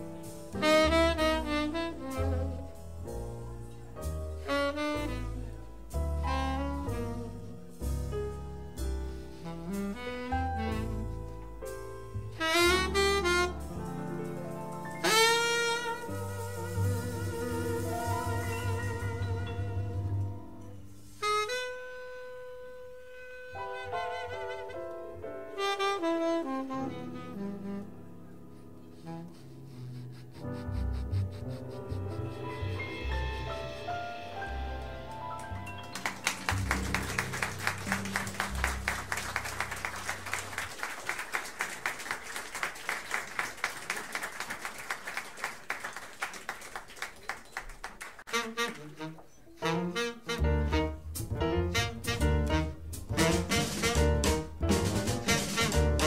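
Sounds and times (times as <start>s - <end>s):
tenor saxophone playing jazz: 0.0s - 40.7s, 48.3s - 56.0s
audience applauding: 35.1s - 49.3s.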